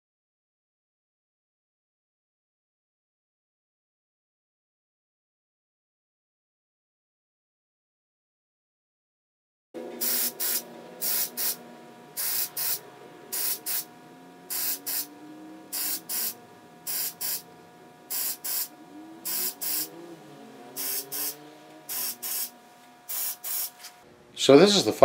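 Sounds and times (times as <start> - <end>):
aerosol can spraying: 10.0 - 11.6, 12.2 - 13.9, 14.5 - 15.1, 15.7 - 17.4, 18.1 - 20.0, 20.7 - 22.5, 23.1 - 24.0.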